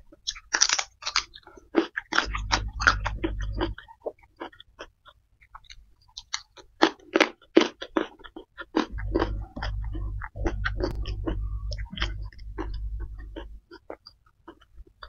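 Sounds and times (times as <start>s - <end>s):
crunchy chewing: 0.0s - 15.0s
steady low rumble: 2.2s - 3.8s, 8.9s - 13.9s.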